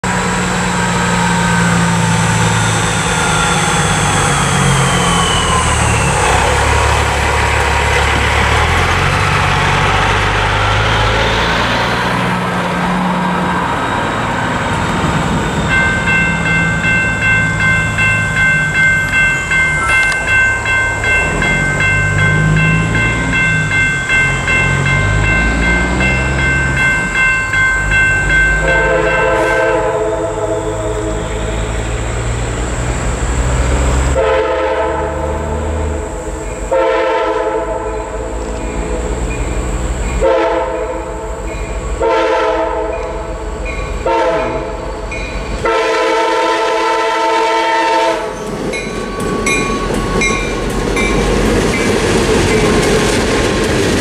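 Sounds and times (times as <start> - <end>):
truck driving past: 0.0 - 17.4, 19.5 - 36.4
electronic crossing bells: 15.2 - 32.2, 48.7 - 52.9
diesel locomotive horn: 28.5 - 50.5.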